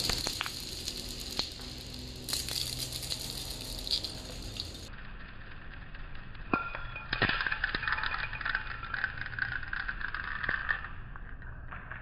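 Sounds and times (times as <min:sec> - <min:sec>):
marbles clacking: 0:00.0 - 0:12.0
marbles rolling on stone floor: 0:00.0 - 0:12.0.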